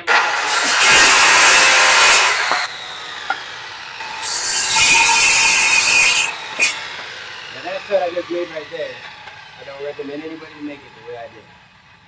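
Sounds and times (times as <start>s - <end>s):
circular saw cutting wood: 0.0s - 12.0s.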